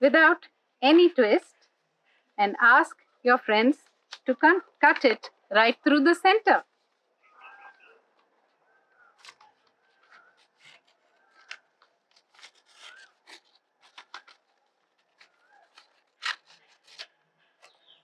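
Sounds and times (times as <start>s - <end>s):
faint bird chirp: 7.2s - 10.5s, 17.3s - 18.0s
scissors snipping paper: 9.2s - 18.0s.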